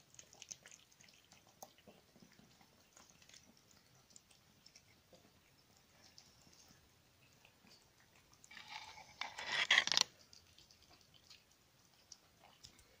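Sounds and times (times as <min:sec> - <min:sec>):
kittens chewing cat food: 0:00.0 - 0:13.0
loud scraping rustling noise: 0:08.5 - 0:10.0.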